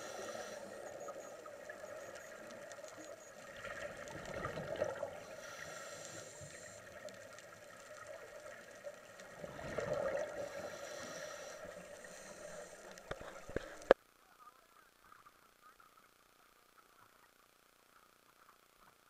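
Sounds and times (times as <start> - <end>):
exhaled bubbles gurgling underwater: 0.0 - 14.0
steady hum: 0.0 - 19.0.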